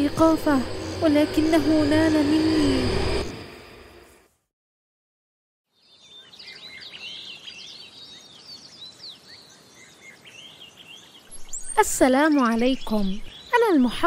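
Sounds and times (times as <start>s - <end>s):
faint outdoor background: 0.0s - 4.5s, 5.6s - 14.0s
songbirds chirping and whistling: 5.8s - 14.0s.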